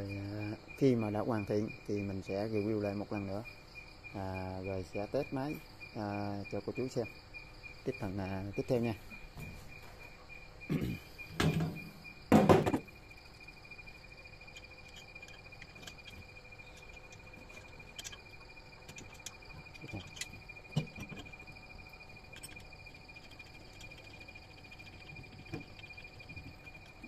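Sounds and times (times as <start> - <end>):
high insect buzz: 0.0 - 27.0
loud metal knocks: 11.4 - 12.9
metal parts clicking and tapping: 14.2 - 27.0.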